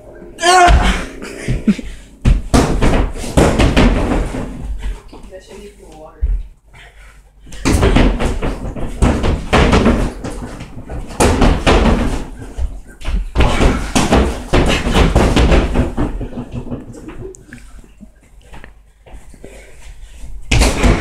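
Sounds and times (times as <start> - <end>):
fists hitting punching bag: 0.5 - 4.9, 7.5 - 16.9, 20.5 - 21.0.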